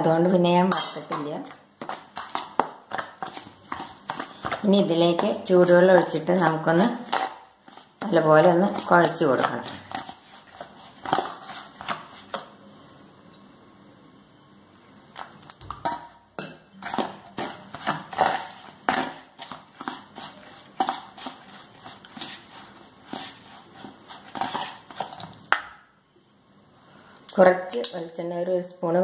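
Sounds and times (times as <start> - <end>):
hand scraping dough in steel bowl: 0.7 - 12.5, 16.8 - 25.4.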